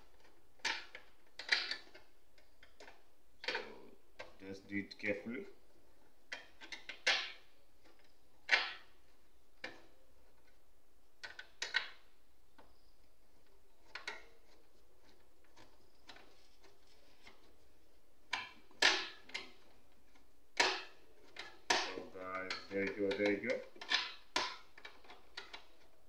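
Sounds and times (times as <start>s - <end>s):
metal and plastic parts clicking: 0.0s - 4.4s, 13.4s - 17.5s, 18.3s - 26.0s.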